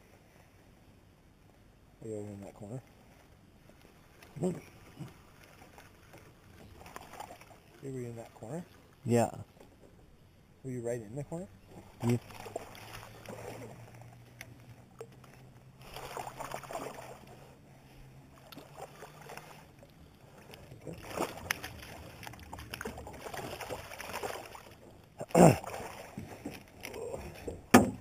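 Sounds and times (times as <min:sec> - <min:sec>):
fish splashing at the surface: 0:15.8 - 0:17.4, 0:20.8 - 0:24.8, 0:25.4 - 0:26.2.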